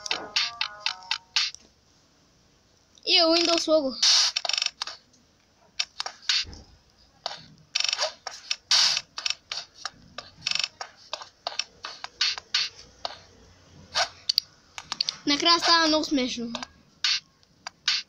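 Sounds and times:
sharp clicks: 3.4 - 5.1, 5.8 - 6.5, 14.0 - 15.2.

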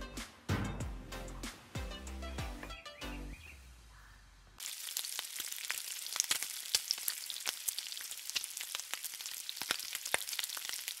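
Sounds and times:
bacon sizzling on a griddle: 4.6 - 11.0
fat popping and crackling: 4.6 - 11.0.

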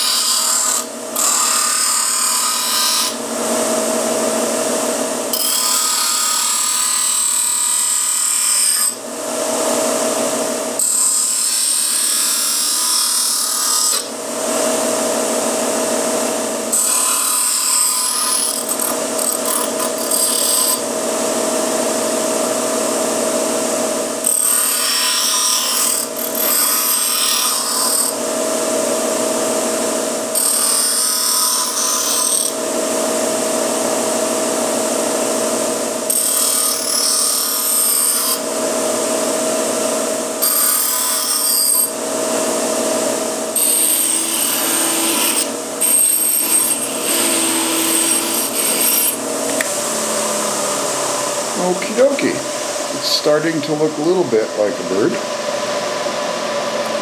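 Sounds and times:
bench grinder motor hum: 0.0 - 53.0
metal grinding on wheel: 5.3 - 9.0, 16.7 - 20.9, 43.5 - 51.4.

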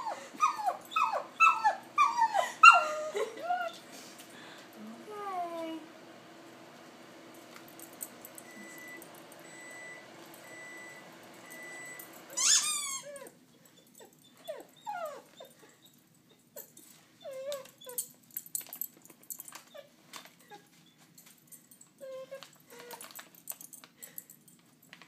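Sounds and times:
dog whining and whimpering: 0.0 - 3.9, 11.5 - 18.2, 19.5 - 21.0, 22.0 - 23.2.

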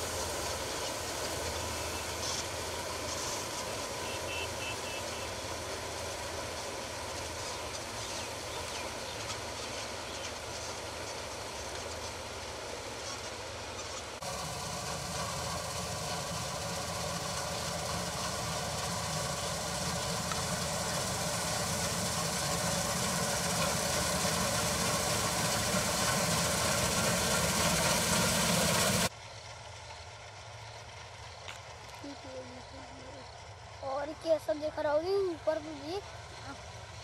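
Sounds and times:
combine harvester running: 0.0 - 37.0.

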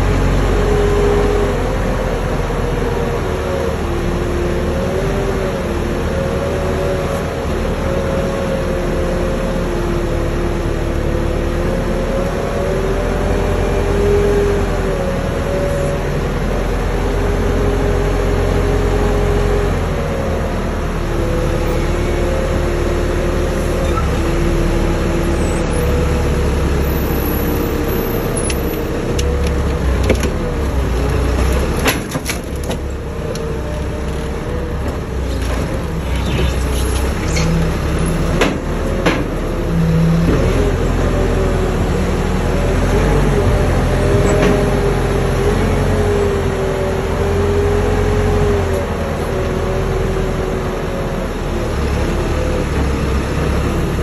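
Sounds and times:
forklift engine running: 0.0 - 54.0.

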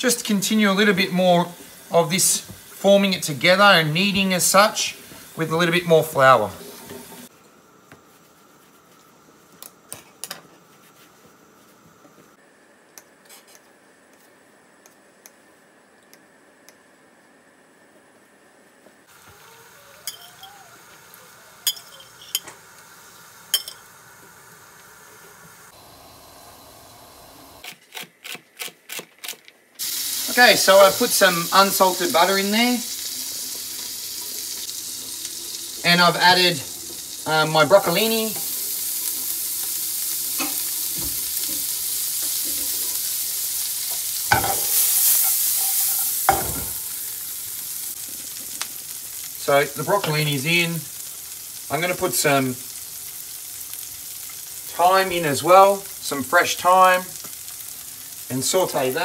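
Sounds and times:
vegetables sizzling in butter: 0.0 - 7.3, 19.0 - 27.6, 29.8 - 59.0
water boiling in a saucepan: 0.0 - 7.3, 19.1 - 27.6, 29.8 - 59.0
metal spoon clinking on pot: 20.1 - 20.5, 21.6 - 22.5, 23.6 - 23.8.

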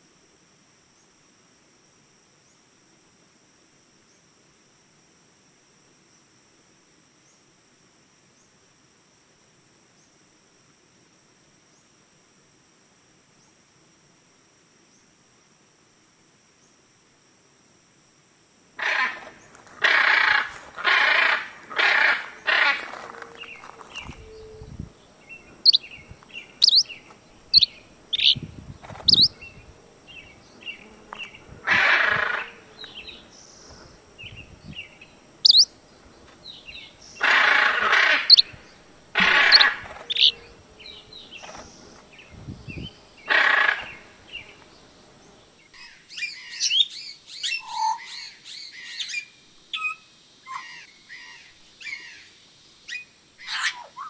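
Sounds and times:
macaw squawks: 18.8 - 24.5, 26.6 - 26.9, 27.6 - 28.4, 29.0 - 29.4, 31.6 - 32.6, 35.4 - 35.7, 37.2 - 38.6, 39.2 - 40.5, 43.3 - 44.0, 45.8 - 52.3, 52.9 - 54.0
high bird twittering: 23.3 - 35.7, 36.4 - 44.6
small birds chirping: 23.3 - 54.0.

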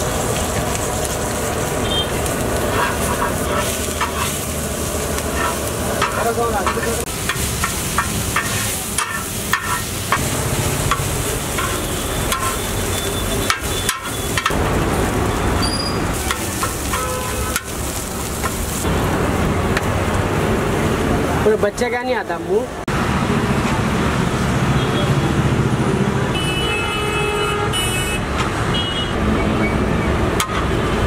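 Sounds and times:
food sizzling: 0.0 - 22.0
metal spatula scraping griddle: 2.6 - 4.5, 5.2 - 10.2, 11.6 - 12.6.

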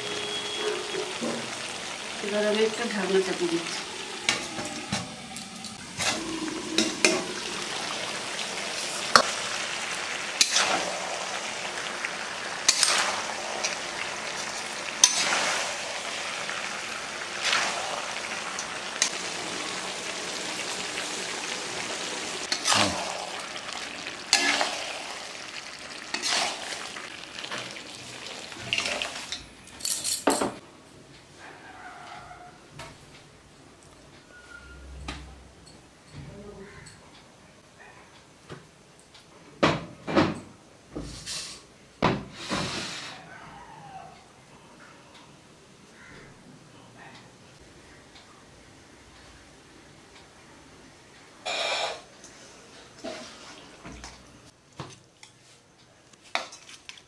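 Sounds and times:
food sizzling in a pan: 0.0 - 29.6, 51.4 - 54.1.

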